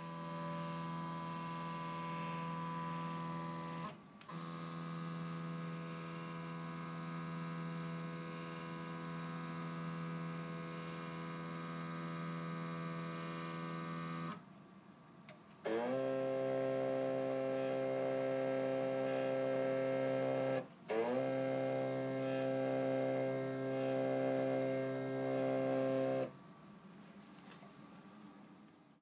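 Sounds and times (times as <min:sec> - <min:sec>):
lathe motors humming: 0:15.7 - 0:26.3.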